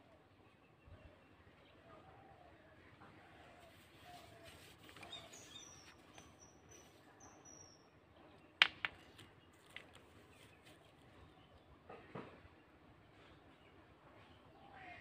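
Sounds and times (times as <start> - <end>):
faint bird chirps: 0.0 - 8.5.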